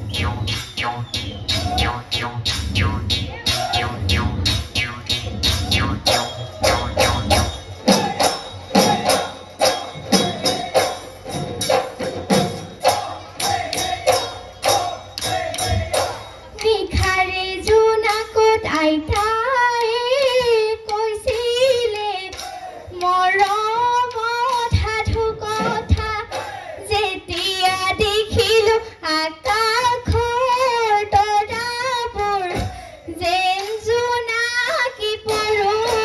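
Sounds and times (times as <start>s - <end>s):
low thumps: 0.0s - 9.1s
woman singing: 16.6s - 36.0s.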